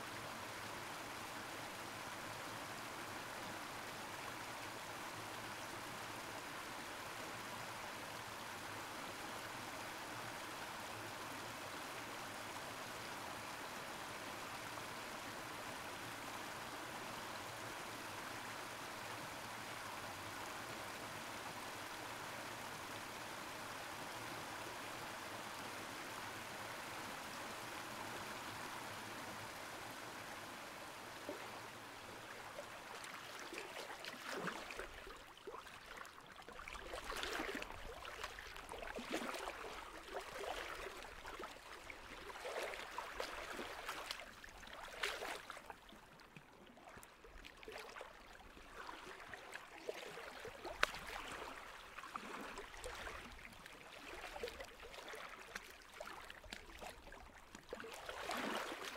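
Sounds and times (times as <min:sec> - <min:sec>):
stream water rushing: 0:21.8 - 0:46.3, 0:46.9 - 0:58.9
water gurgling and splashing: 0:31.2 - 0:58.9.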